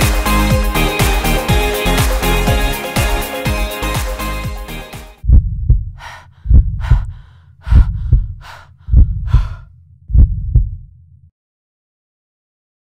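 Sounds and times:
heartbeat thumps: 0:05.2 - 0:10.9
heavy panting breaths: 0:06.0 - 0:09.7.

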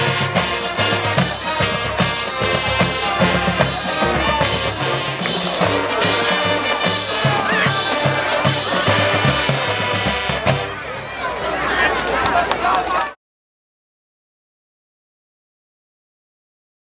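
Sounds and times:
drums and percussion beat: 0:00.0 - 0:10.8
brass horns playing a tune: 0:00.0 - 0:10.9.

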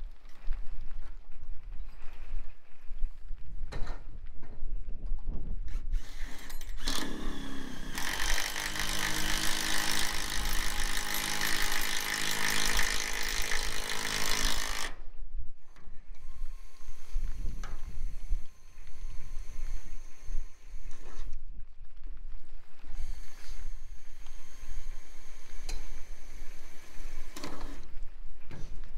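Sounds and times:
wind rumble on microphone: 0:00.0 - 0:07.9, 0:14.6 - 0:28.9
cordless drill driving screws: 0:05.9 - 0:15.0, 0:22.9 - 0:28.0.

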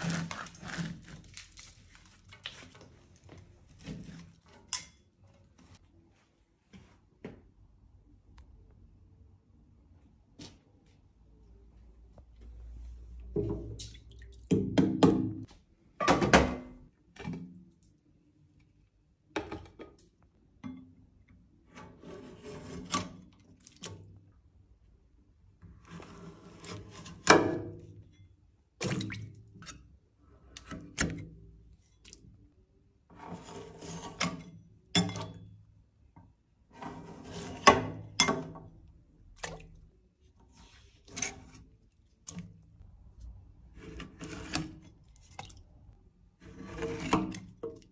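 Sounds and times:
metal scraper scraping wax: 0:00.0 - 0:01.4, 0:21.7 - 0:23.2, 0:33.1 - 0:34.5, 0:36.8 - 0:37.9, 0:43.7 - 0:45.0, 0:46.4 - 0:47.5.

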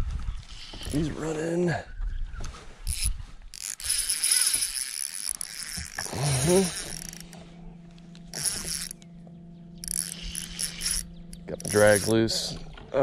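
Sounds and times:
fishing reel drag clicking: 0:00.5 - 0:01.0, 0:02.8 - 0:09.1, 0:09.8 - 0:12.6.

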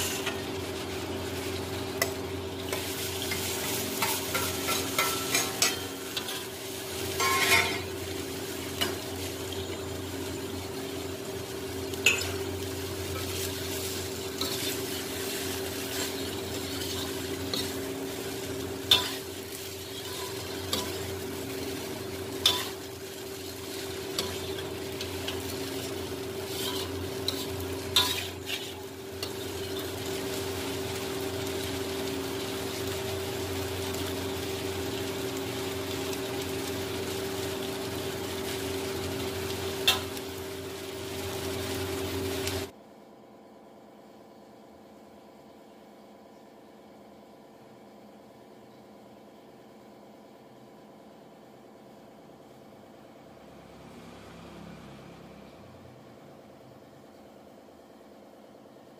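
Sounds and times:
frying sizzle: 0:00.0 - 0:42.8, 0:50.7 - 0:58.6
metal spoon scraping pan: 0:07.2 - 0:07.9, 0:18.9 - 0:21.1, 0:26.4 - 0:29.4.

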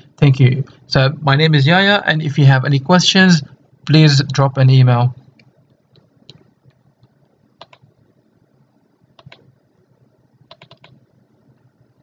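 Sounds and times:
keyboard and mouse clicks: 0:05.4 - 0:07.9, 0:09.2 - 0:09.5, 0:10.5 - 0:11.0.

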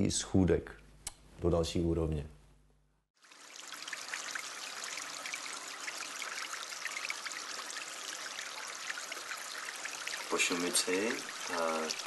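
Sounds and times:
water babbling over stones: 0:03.2 - 0:12.0.

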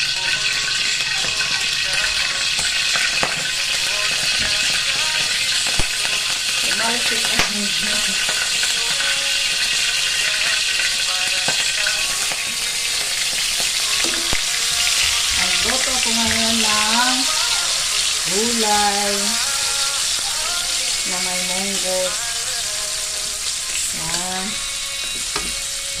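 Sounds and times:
hot oil sizzling in a wok: 0:00.0 - 0:26.0.

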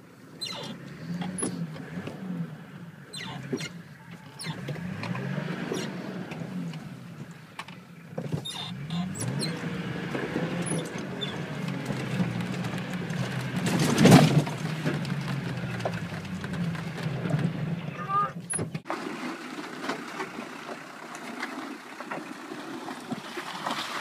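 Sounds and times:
diesel engine revving: 0:00.0 - 0:21.1
vehicle body rattles and clicks: 0:00.0 - 0:24.0
vehicle jolting thump: 0:13.3 - 0:17.7.

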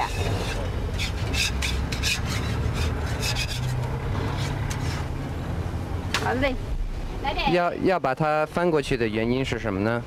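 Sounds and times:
spatula scraping a griddle: 0:00.0 - 0:05.2.

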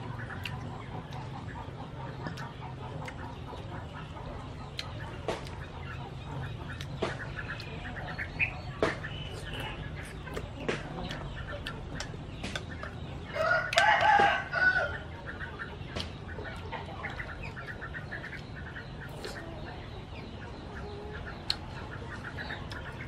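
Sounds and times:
rooster crowing: 0:13.4 - 0:15.0.

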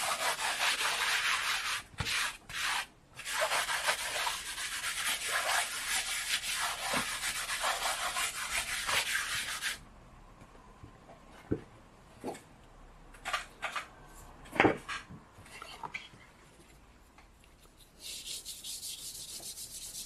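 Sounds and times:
charcoal scratching on paper: 0:00.0 - 0:09.8, 0:17.7 - 0:20.0.

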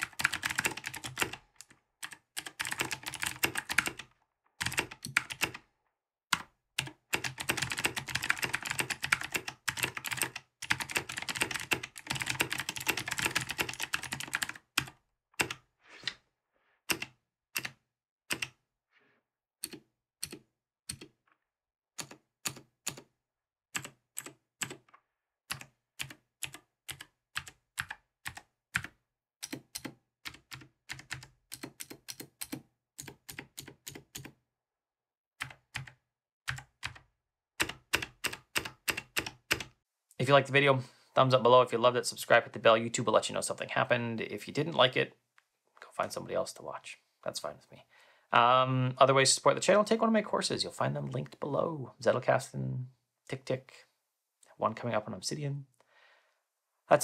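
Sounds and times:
typing on mechanical keyboard: 0:00.0 - 0:05.6, 0:06.3 - 0:15.6, 0:16.9 - 0:18.6, 0:19.6 - 0:21.2, 0:22.0 - 0:23.1, 0:23.8 - 0:24.9, 0:25.5 - 0:34.4, 0:35.4 - 0:37.0, 0:37.6 - 0:39.7.

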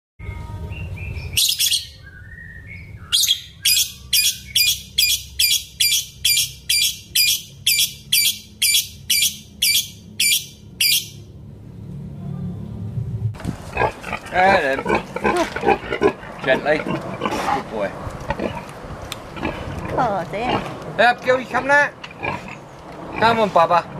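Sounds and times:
lovebird chirping: 0:00.4 - 0:11.2.

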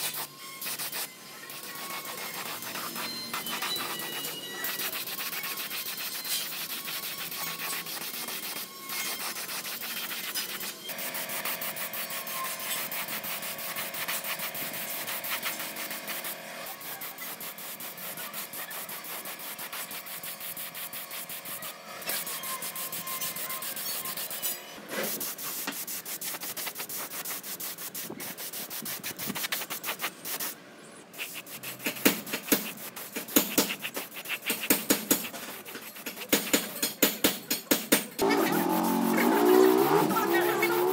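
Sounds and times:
sanding strokes: 0:00.0 - 0:40.9.

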